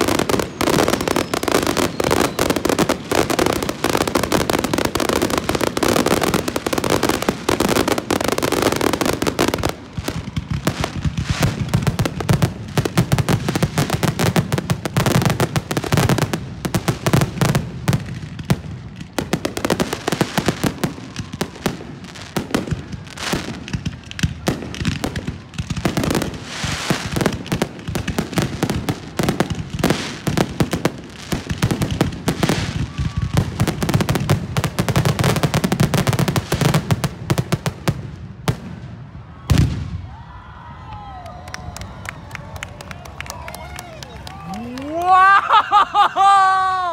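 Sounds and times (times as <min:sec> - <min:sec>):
fireworks bangs and crackles: 0:00.0 - 0:46.9.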